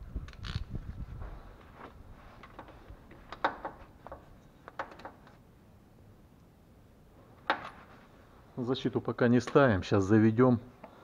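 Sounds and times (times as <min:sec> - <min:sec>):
tools clicking and knocking: 0:02.4 - 0:05.4.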